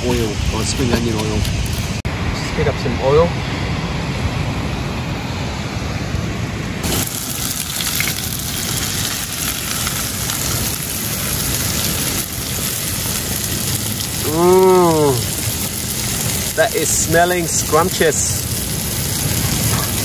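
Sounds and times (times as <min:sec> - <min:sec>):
onions sizzling in hot oil: 0:06.8 - 0:20.0.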